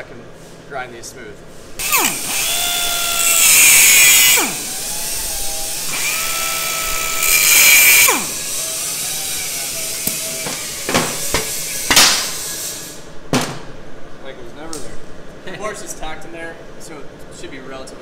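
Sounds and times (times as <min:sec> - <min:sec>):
cutoff wheel whining: 0:01.8 - 0:11.8
grinding into metal: 0:01.8 - 0:11.9.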